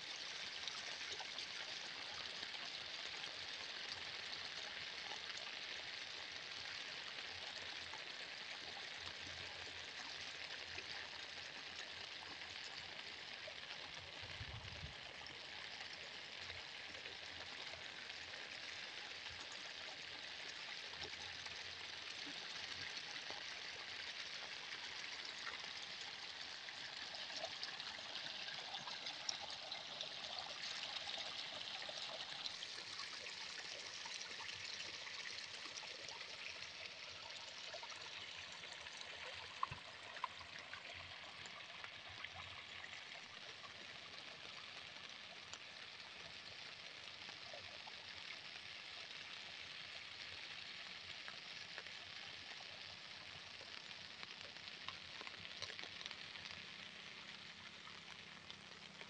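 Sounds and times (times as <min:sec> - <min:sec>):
faint ticks: 0:51.2 - 0:59.0.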